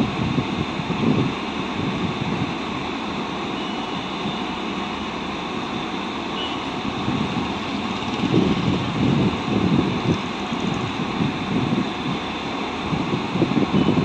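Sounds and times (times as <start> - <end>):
electric train rumbling: 0.0 - 14.0
wind buffeting microphone: 6.9 - 14.0.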